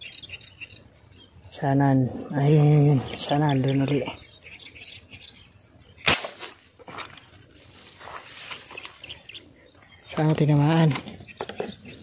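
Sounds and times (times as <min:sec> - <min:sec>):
sharp snap of arrow release: 0:06.0 - 0:06.6.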